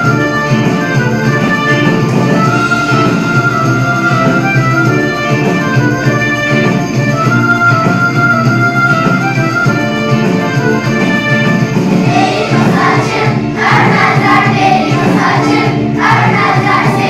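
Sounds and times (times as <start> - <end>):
instrumental backing music: 0.0 - 17.0
children singing in unison: 12.0 - 17.0.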